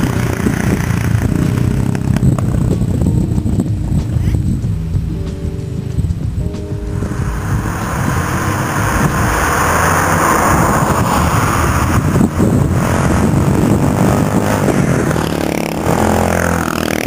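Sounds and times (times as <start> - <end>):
low rumble: 0.0 - 17.0
car passing by: 6.5 - 17.0.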